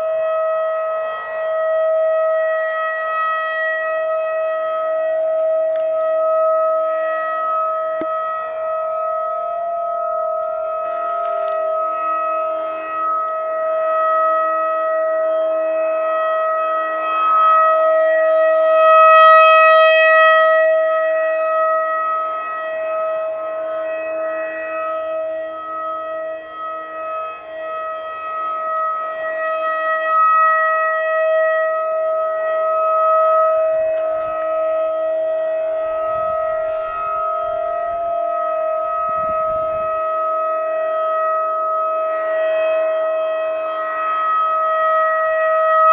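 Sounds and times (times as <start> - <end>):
rotating warning siren: 0.0 - 45.9.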